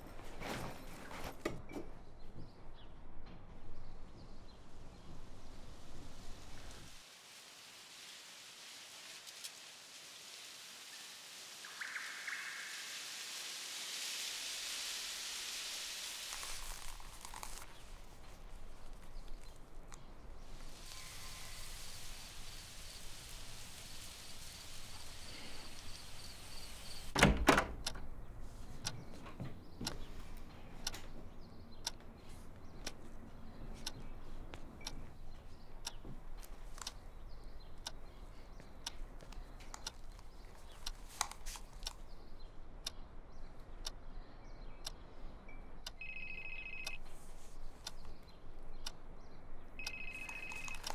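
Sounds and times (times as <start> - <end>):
steady hiss: 5.2 - 27.4
door opening thump: 27.2 - 27.8.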